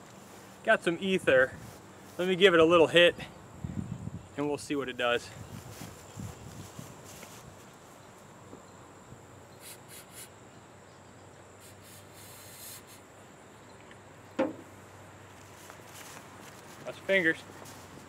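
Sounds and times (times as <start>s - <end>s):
insects droning: 0.0s - 18.0s
aerosol can spraying: 9.6s - 10.3s, 11.6s - 13.0s
sharp knock: 14.4s - 14.6s.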